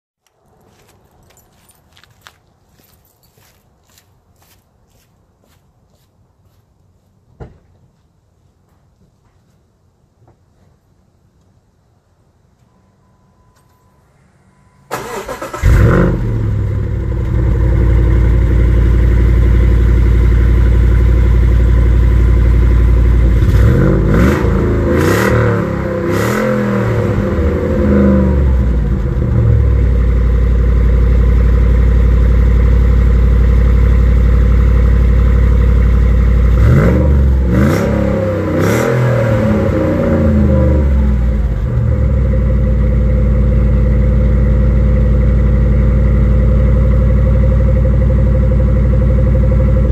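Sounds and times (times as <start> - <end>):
engine cranking and starting: 14.9 - 16.1
engine idling: 15.0 - 23.6, 28.4 - 36.8, 40.9 - 49.9
engine revving blips: 23.3 - 29.9, 36.4 - 42.1.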